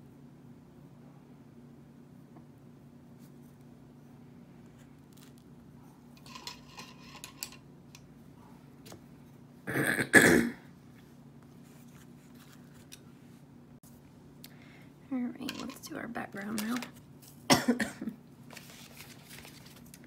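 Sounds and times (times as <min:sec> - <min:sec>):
low steady hum: 0:00.0 - 0:20.0
person clearing throat: 0:09.6 - 0:10.7, 0:17.5 - 0:18.2.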